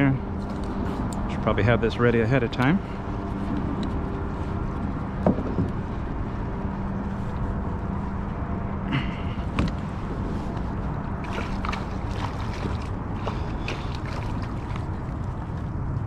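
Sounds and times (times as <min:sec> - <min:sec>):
low rumble with faint hum: 0:00.0 - 0:16.0
knocks and clicks of gear: 0:05.1 - 0:05.8, 0:09.5 - 0:09.9.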